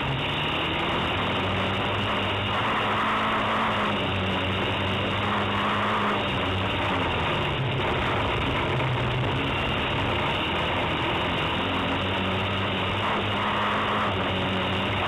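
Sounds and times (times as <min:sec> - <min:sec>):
race car engine running hard: 0:00.0 - 0:15.0
road and wind noise: 0:00.0 - 0:15.0.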